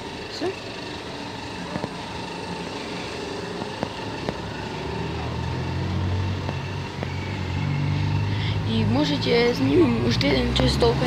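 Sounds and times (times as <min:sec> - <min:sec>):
vehicle engine running: 0:00.0 - 0:11.0.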